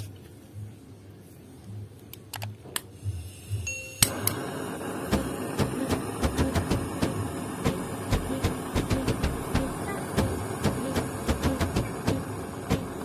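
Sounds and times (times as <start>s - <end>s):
gas torch flame hissing: 2.9s - 13.0s.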